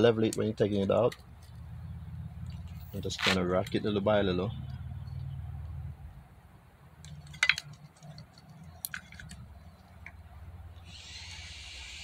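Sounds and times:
fuel injector clicking and knocking: 0.0 - 4.0, 7.0 - 10.3
steady hiss: 10.8 - 12.0.

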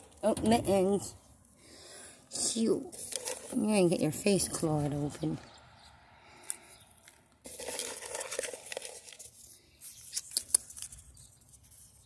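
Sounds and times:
crinkly rustling: 2.3 - 5.4, 6.5 - 12.0.

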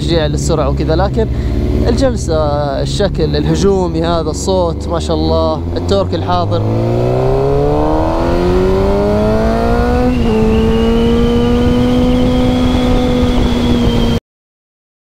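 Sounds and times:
motorcycle engine accelerating: 0.0 - 14.2
wind noise: 6.4 - 14.2.

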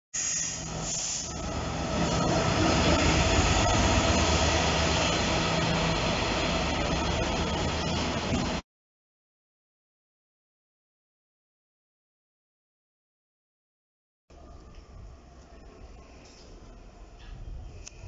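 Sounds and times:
locomotive engine hum: 0.5 - 8.6
freight wagons rumbling on rails: 0.6 - 8.6.

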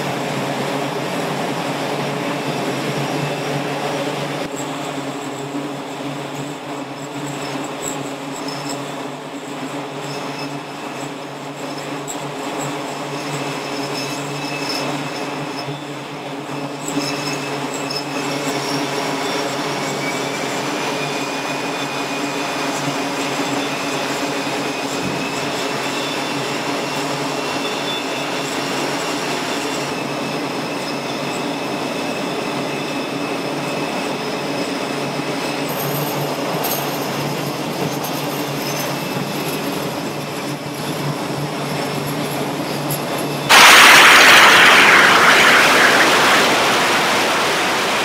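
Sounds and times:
jet engines running: 0.0 - 17.0, 32.1 - 48.0.

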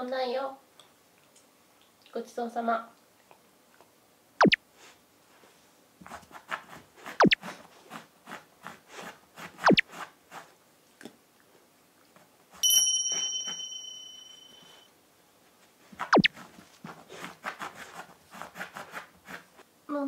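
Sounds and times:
dog scratching at floor mat: 6.0 - 10.6, 15.8 - 19.6
bright ringing chime: 12.6 - 14.9.

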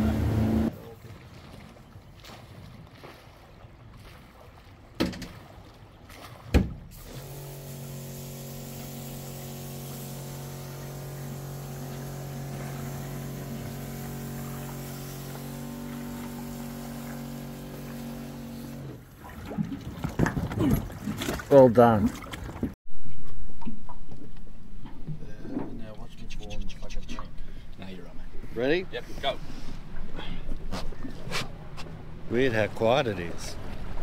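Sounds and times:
outboard motor idling: 0.0 - 1.0, 7.0 - 19.1.

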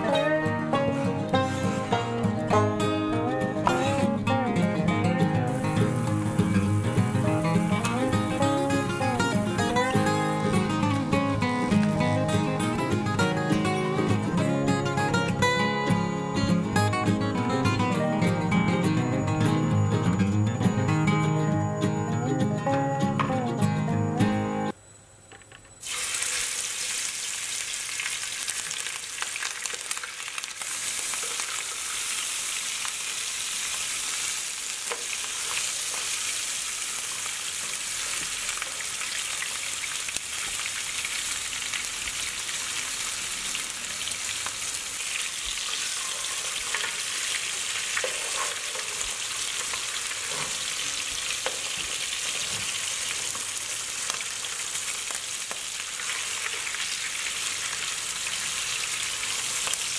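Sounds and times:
fish frying in hot oil: 25.8 - 59.9.

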